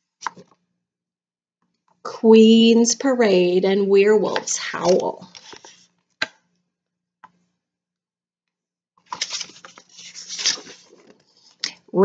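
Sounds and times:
book page turning: 0.2 - 0.6, 4.4 - 6.0, 9.0 - 11.8.

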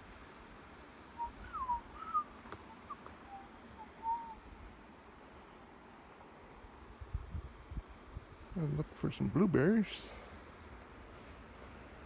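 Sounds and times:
short whistled notes: 1.2 - 4.4.

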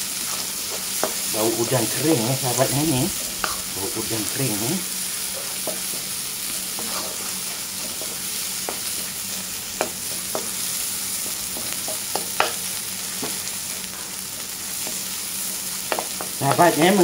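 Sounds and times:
paste sizzling in oil: 0.0 - 17.0
wooden spatula scraping a wok: 0.2 - 9.1.

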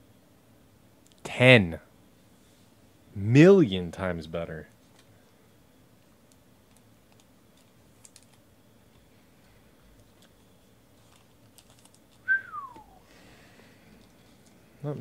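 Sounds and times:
trading cards clicking and rustling: 6.3 - 8.4, 10.0 - 12.2
short falling whistle: 12.3 - 13.0.

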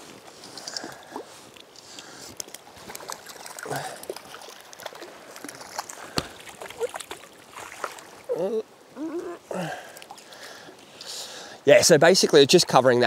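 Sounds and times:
fish splashing in water: 2.6 - 8.3.

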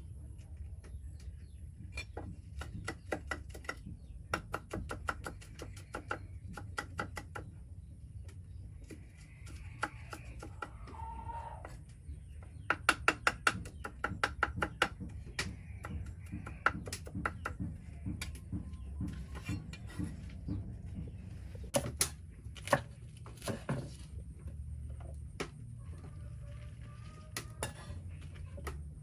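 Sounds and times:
cleaver chopping on wooden block: 2.0 - 7.5, 12.6 - 20.2.

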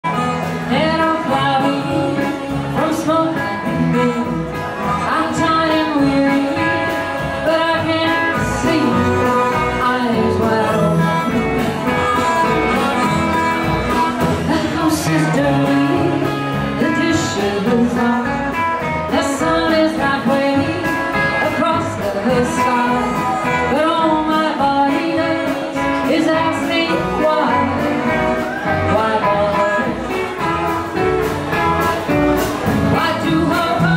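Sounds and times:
double bass: 0.0 - 33.9
drums: 0.0 - 33.9
guitars: 0.0 - 33.9
woman singing: 0.1 - 30.2, 32.7 - 33.9
harmonica: 8.3 - 15.4.

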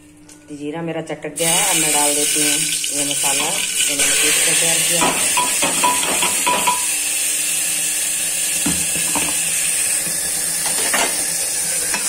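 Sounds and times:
spoon scraping and tapping steel bowl: 5.4 - 6.9.

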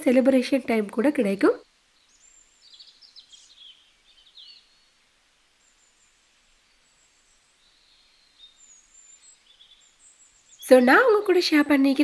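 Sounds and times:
bird chirps: 2.0 - 5.0, 5.6 - 11.4.

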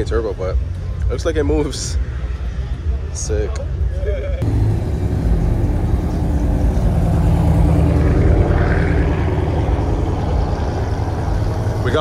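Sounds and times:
car engine running: 4.4 - 12.0.

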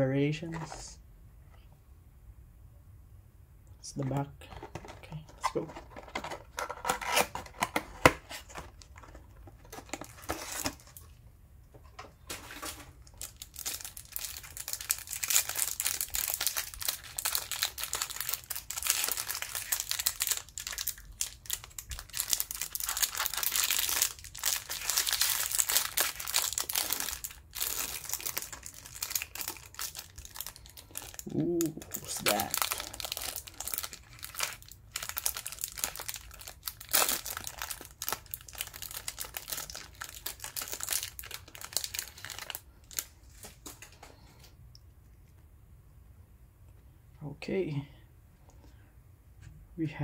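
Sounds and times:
plastic wrapper tearing and crinkling: 5.5 - 11.2, 12.3 - 43.9.

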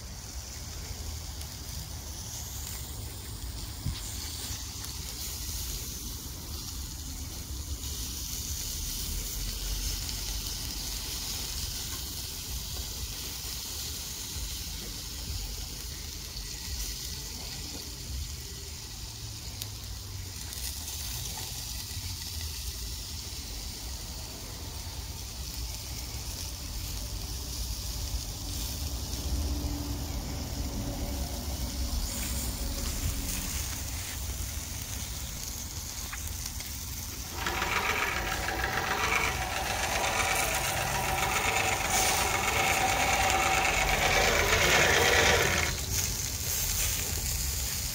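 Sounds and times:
chicken sizzling on a grill: 0.0 - 37.3, 42.0 - 42.2, 45.7 - 47.9
hand-cranked fan blower whirring: 36.9 - 46.2.

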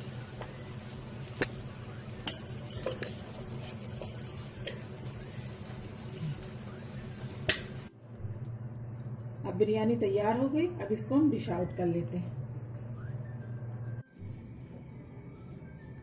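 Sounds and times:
steady low hum: 0.0 - 16.0
spoon mixing rice in a pot: 0.2 - 6.1
spoon clinking against pot: 2.2 - 3.2.

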